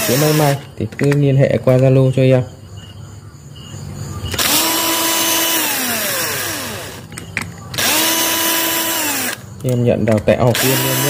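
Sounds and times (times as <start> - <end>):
cordless drill motor spinning: 0.0 - 0.7, 4.3 - 9.7, 10.5 - 11.0
drill clicks: 4.3 - 11.0.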